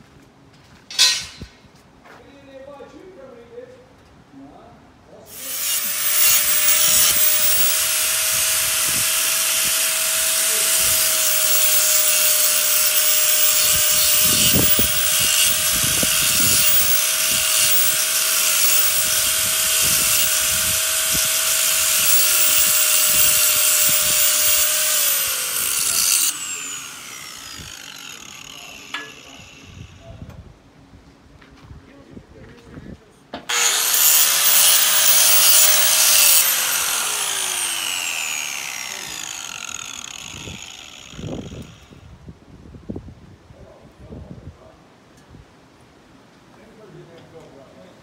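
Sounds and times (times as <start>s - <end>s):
angle grinder whining: 5.3s - 30.0s, 33.5s - 42.0s.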